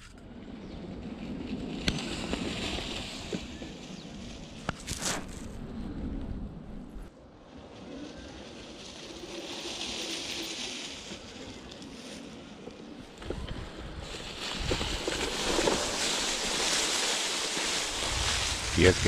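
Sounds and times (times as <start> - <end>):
bike tyres rolling on dirt: 0.2 - 19.0
wind rushing over microphone: 0.3 - 7.2, 13.0 - 19.0.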